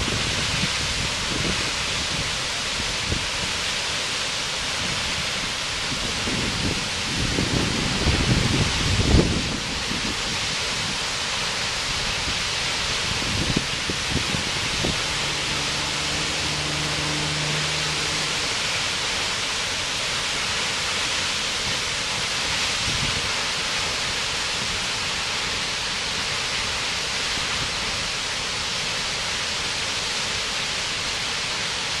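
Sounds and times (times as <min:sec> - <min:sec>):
waterfall roaring: 0:00.0 - 0:32.0.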